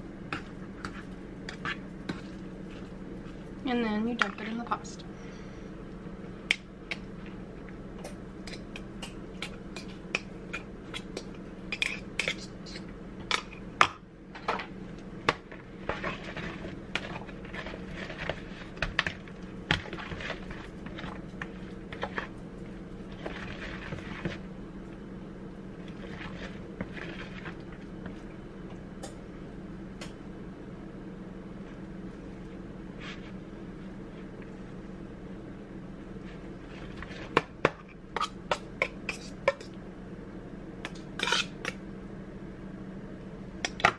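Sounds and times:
steady low hum: 0.0 - 43.9
spoon scraping and stirring: 0.4 - 3.5, 15.5 - 24.5, 25.8 - 28.2, 36.2 - 39.8, 41.2 - 41.8.

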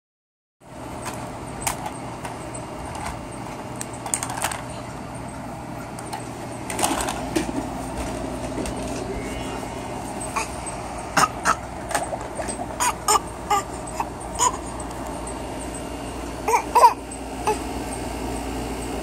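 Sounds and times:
steady background hum: 0.6 - 19.0
plastic toys clacking: 1.0 - 4.8.

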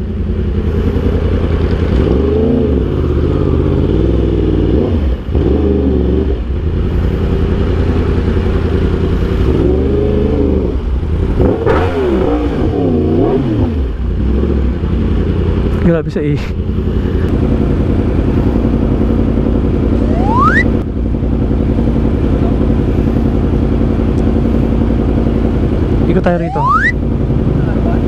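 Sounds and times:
motorcycle engine revving: 0.0 - 15.9, 16.5 - 28.0.

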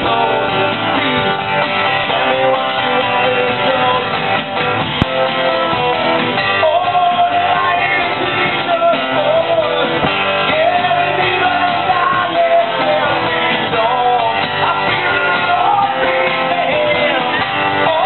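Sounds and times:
man singing: 0.0 - 4.8, 5.5 - 18.0
acoustic guitars strumming: 0.0 - 18.0
electric bass guitar: 0.0 - 18.0.

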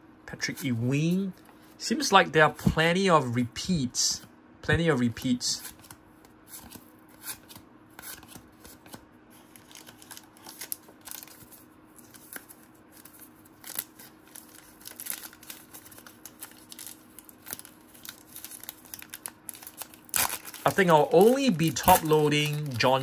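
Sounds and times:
cards clicking and rustling: 5.6 - 23.0.

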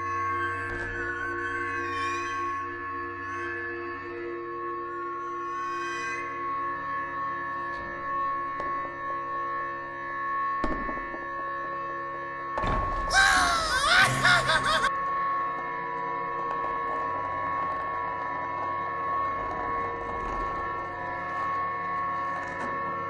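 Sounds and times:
high-pitched laughter: 13.1 - 14.9.

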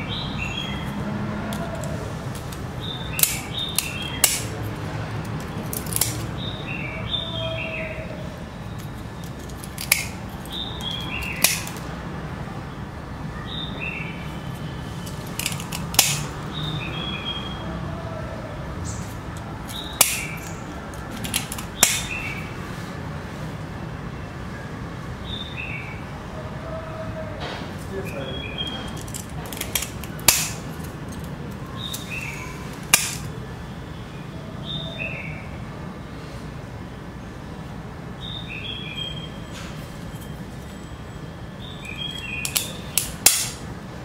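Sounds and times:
birds chirping: 0.0 - 22.9, 24.2 - 43.7
pliers snapping seashell: 1.5 - 6.3, 9.2 - 11.9, 15.1 - 16.3, 19.3 - 22.1, 28.9 - 33.3, 42.1 - 43.6.

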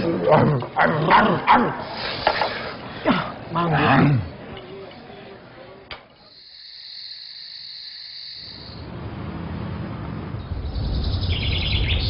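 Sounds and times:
insect chirring: 6.3 - 8.8.

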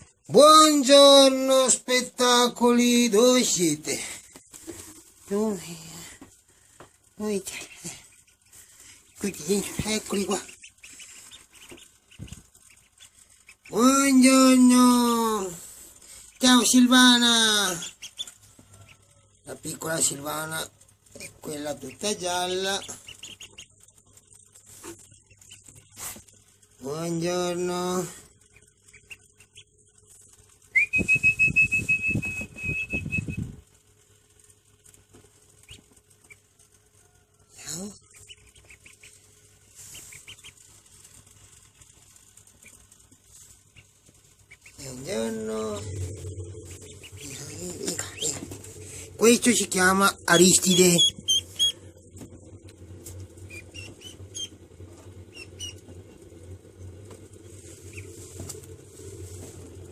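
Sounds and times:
baby bird peeping: 7.2 - 19.2, 21.1 - 24.0, 27.5 - 33.5, 35.6 - 36.5, 37.8 - 51.9, 52.5 - 56.2.

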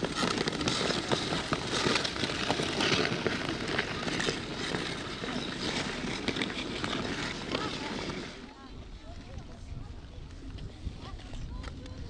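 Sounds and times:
ice skate blades scraping: 0.0 - 8.5.

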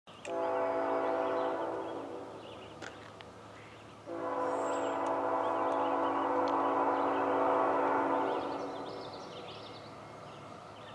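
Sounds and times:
locomotive air horn blasts: 0.2 - 2.4, 4.1 - 9.0.

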